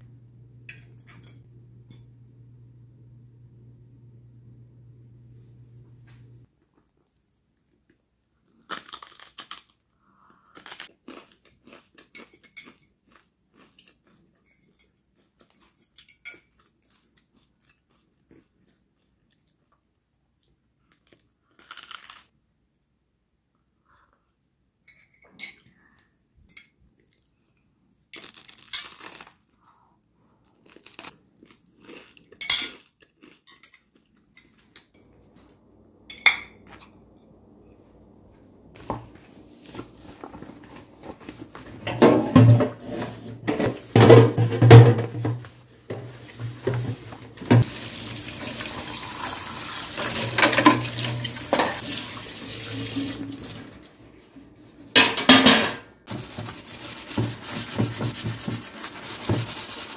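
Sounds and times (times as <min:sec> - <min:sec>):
metal pan scrubbed in sink: 0:41.9 - 0:53.8
tap water running: 0:46.4 - 0:54.1.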